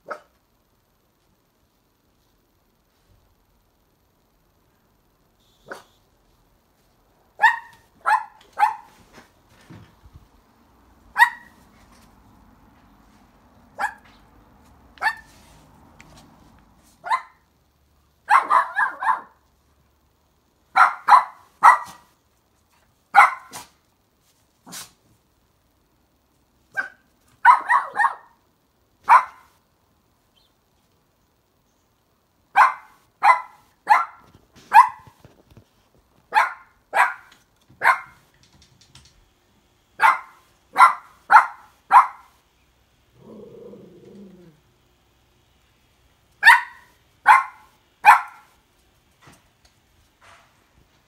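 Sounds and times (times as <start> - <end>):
puppy barking: 0.0 - 0.3, 5.6 - 6.0, 7.4 - 9.0, 11.1 - 11.6, 13.8 - 14.2, 15.0 - 15.4, 17.0 - 17.4, 18.2 - 19.4, 20.8 - 22.1, 23.2 - 23.7, 26.7 - 28.4, 29.0 - 29.5, 32.5 - 35.2, 36.3 - 38.2, 40.0 - 42.4, 46.4 - 48.6.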